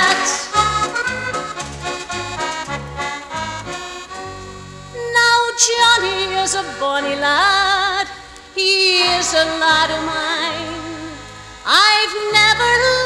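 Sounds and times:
person singing with vibrato: 0.0s - 1.2s, 4.9s - 13.0s
band playing chords: 0.0s - 13.0s.

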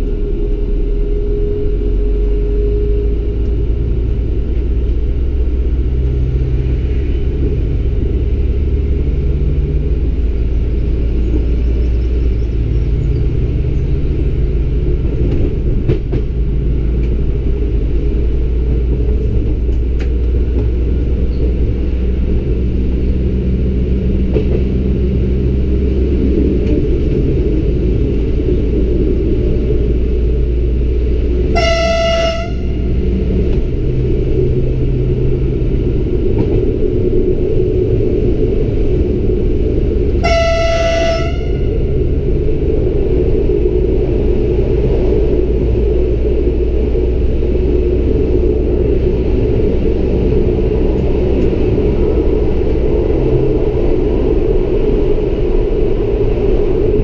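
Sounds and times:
train running rumble: 0.0s - 57.0s
train horn blasts: 31.4s - 33.1s, 40.1s - 42.0s.

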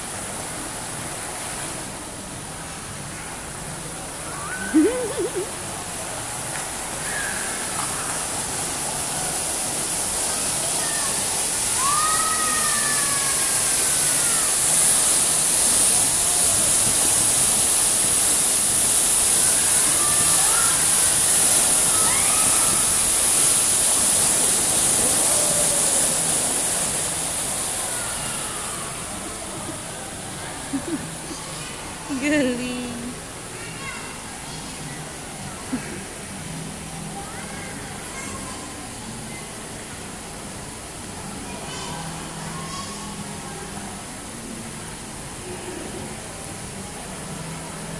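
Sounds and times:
fountain water jets splashing: 0.0s - 47.9s.

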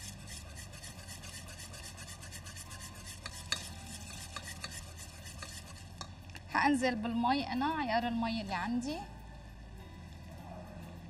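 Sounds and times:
spoon scraping in a pot: 0.0s - 6.4s.

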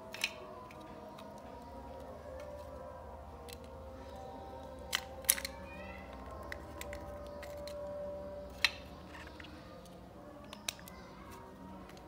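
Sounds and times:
plastic housing clicks: 0.0s - 1.5s, 4.7s - 11.0s.

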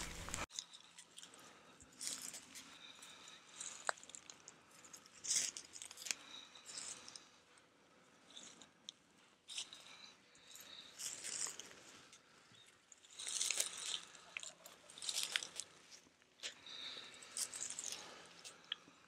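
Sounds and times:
footsteps crunching dry leaves: 0.0s - 0.5s, 13.1s - 15.7s.

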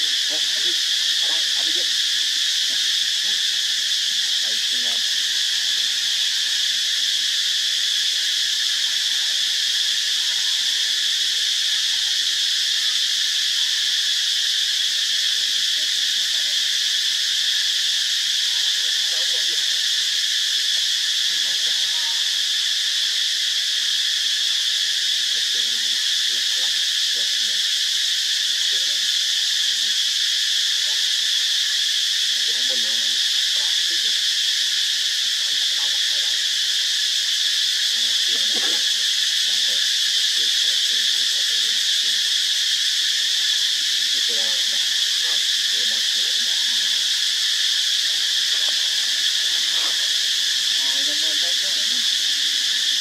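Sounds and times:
insects buzzing: 0.0s - 53.0s.

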